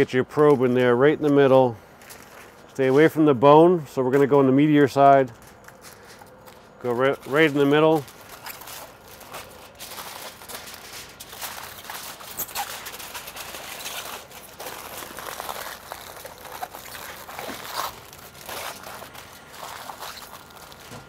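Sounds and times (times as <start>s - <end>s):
aluminium foil crinkling: 4.8s - 21.0s.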